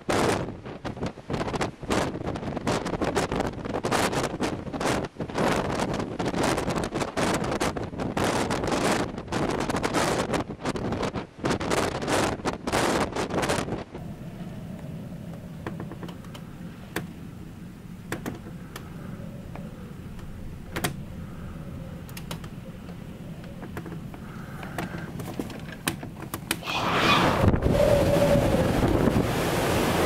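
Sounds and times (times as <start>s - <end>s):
breaking sea: 0.0s - 30.0s
wind buffeting microphone: 0.0s - 30.0s
low cabin rumble: 13.8s - 30.0s.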